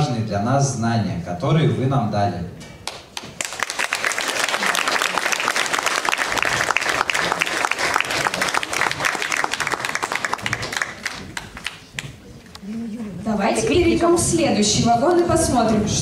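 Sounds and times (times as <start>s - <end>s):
audience applauding: 2.8s - 12.3s.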